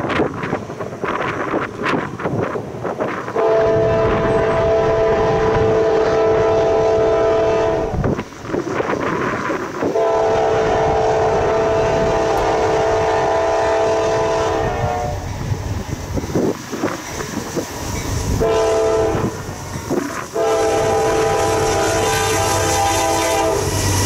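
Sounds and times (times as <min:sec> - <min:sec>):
train rumbling: 0:00.0 - 0:24.0
wind on microphone: 0:00.0 - 0:24.0
locomotive air horn blasts: 0:03.3 - 0:08.1, 0:09.8 - 0:15.3, 0:18.4 - 0:23.8.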